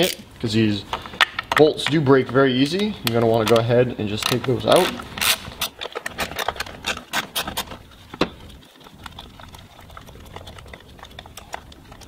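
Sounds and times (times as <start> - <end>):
plastic handling: 0.0 - 12.0
hand ratchet clicking: 2.7 - 7.8.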